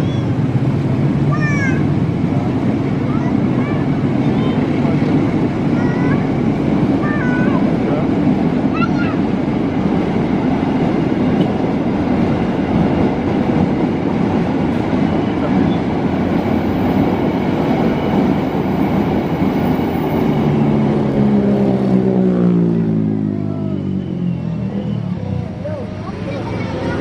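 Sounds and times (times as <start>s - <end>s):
train wheels clattering on track: 2.2s - 20.5s
droning engine sliding down: 15.7s - 27.0s.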